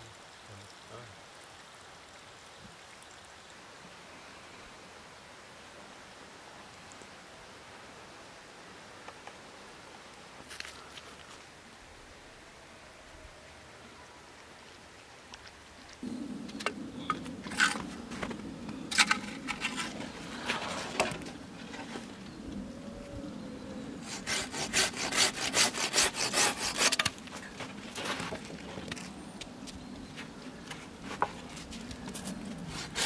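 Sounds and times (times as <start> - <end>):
hand saw cutting wood: 24.0 - 27.2, 32.7 - 33.0.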